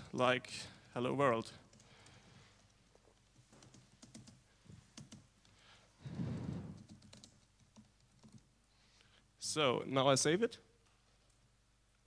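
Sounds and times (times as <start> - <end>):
faint keyboard typing: 0.6 - 5.7, 6.6 - 8.6
low muffled noise: 5.6 - 7.1.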